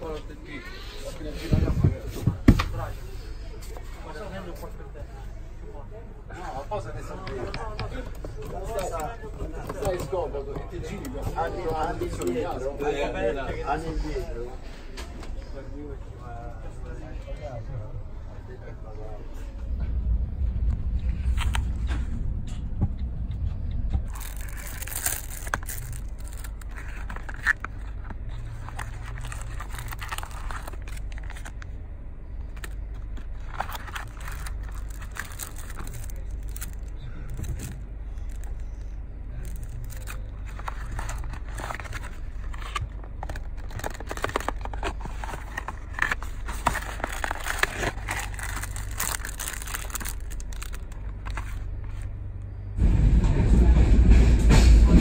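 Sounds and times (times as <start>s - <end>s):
steady low hum: 0.0s - 55.0s
plastic wrappers crinkling: 24.0s - 31.8s, 32.4s - 52.1s.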